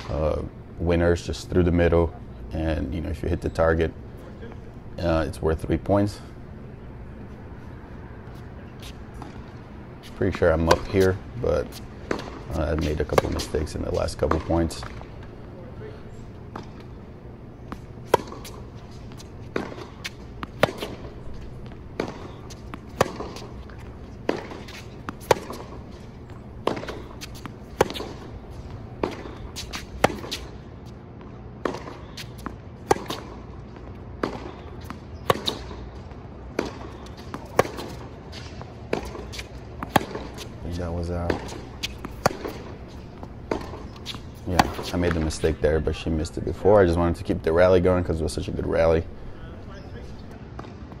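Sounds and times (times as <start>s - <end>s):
racquets striking tennis ball: 8.3s - 15.5s, 16.2s - 46.8s
tennis ball bouncing: 8.3s - 15.5s, 16.4s - 30.6s, 31.2s - 46.1s.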